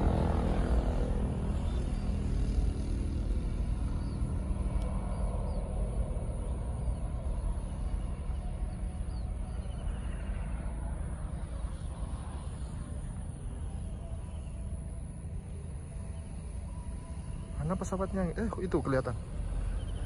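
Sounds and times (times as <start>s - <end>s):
distant plane taking off: 0.0s - 20.0s
faint bird chirps: 6.8s - 20.0s.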